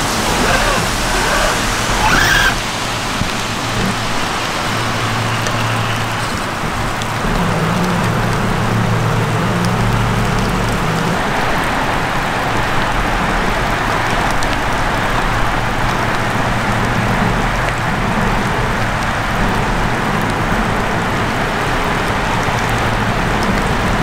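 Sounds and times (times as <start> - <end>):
rain falling: 0.0 - 24.0
stream water running: 0.0 - 24.0
water drips ticking: 3.2 - 11.3.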